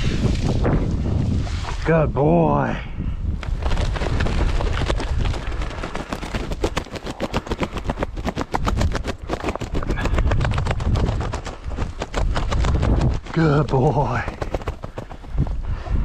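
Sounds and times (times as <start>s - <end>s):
wind buffeting microphone: 0.0s - 6.9s, 7.5s - 16.0s
crackling and rustling: 3.4s - 15.4s.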